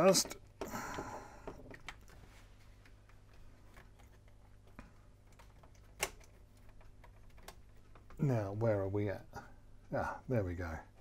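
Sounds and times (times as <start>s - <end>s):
hands handling tape deck clicking: 5.3s - 8.2s.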